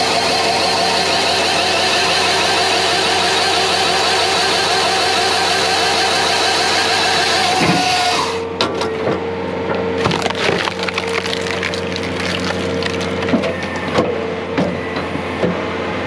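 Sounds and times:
saw cutting through log: 0.0s - 8.5s
engine and hydraulics droning: 0.0s - 16.0s
wood cracking and splintering: 10.0s - 14.0s.

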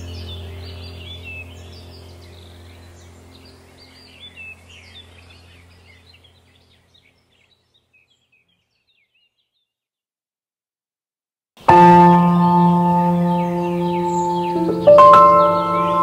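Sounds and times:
steady low drone: 0.0s - 6.4s, 11.6s - 16.0s
bird chirps: 0.0s - 9.8s, 11.6s - 16.0s.

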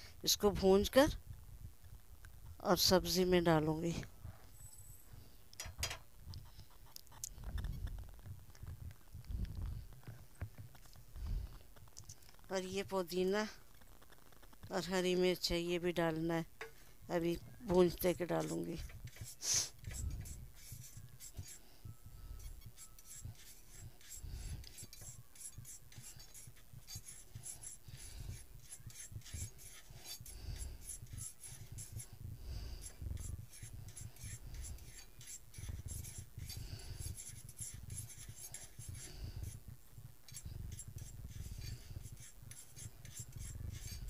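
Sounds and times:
metal spoon scraping a metal pan: 17.7s - 21.7s, 22.4s - 39.6s, 40.3s - 44.0s.

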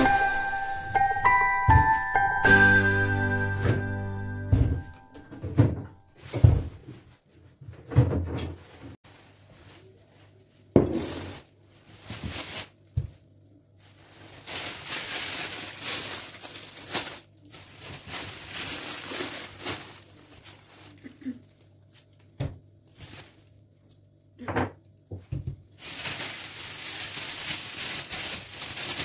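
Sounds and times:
plastic bags rustling: 4.6s - 7.2s, 8.5s - 24.0s, 25.3s - 29.0s.

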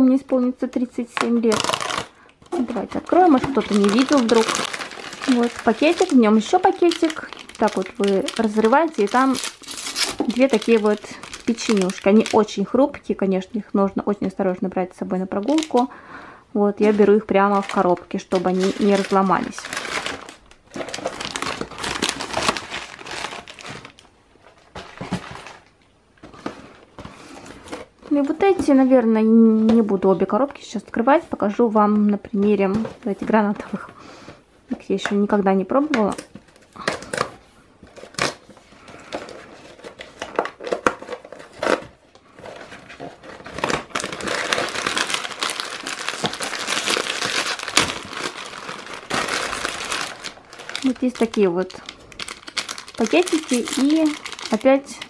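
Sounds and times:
plastic wrapper crinkling: 0.7s - 13.0s, 15.4s - 16.0s, 16.8s - 28.7s, 35.9s - 55.0s.

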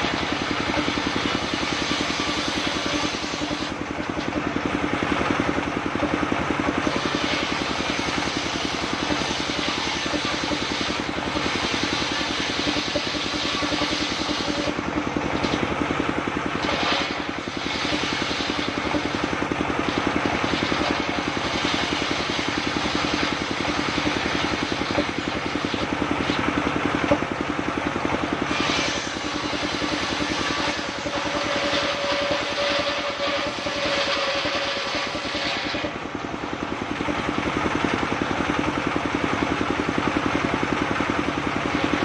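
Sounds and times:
circular saw cutting wood: 0.0s - 40.3s, 41.2s - 42.0s
diesel engine running: 0.0s - 42.0s.

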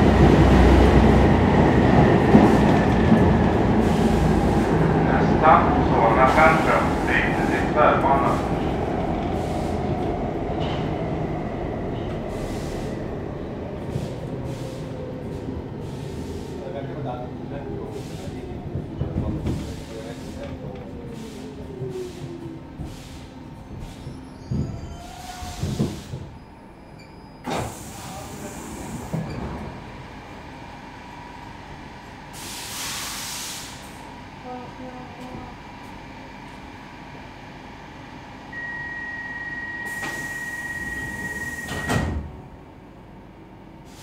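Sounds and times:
subway car running on rails: 0.0s - 44.0s
train air hiss: 9.3s - 10.0s, 12.3s - 13.1s, 13.8s - 15.0s, 17.9s - 18.4s, 25.0s - 26.3s, 27.5s - 29.2s, 32.3s - 34.1s, 39.8s - 41.7s
train thump: 24.4s - 26.4s.

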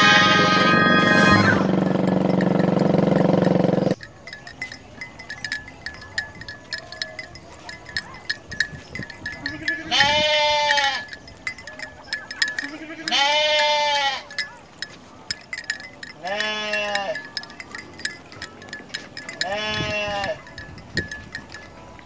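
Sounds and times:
sheep bleating: 0.0s - 1.5s, 9.4s - 11.1s, 12.6s - 14.3s, 16.2s - 17.2s, 19.4s - 20.4s
faint rapid ticking: 1.7s - 9.9s.

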